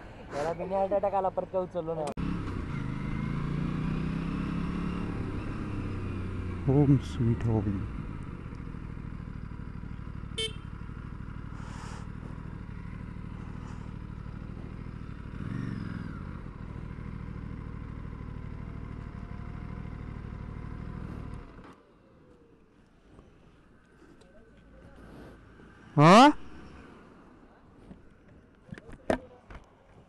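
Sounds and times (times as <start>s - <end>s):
motorcycle engine idling: 6.4s - 21.6s.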